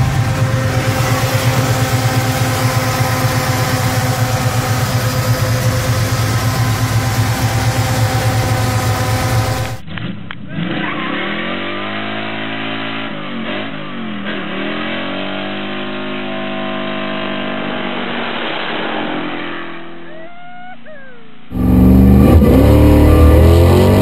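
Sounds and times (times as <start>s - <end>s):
car engine revving: 0.0s - 20.0s, 21.5s - 24.0s.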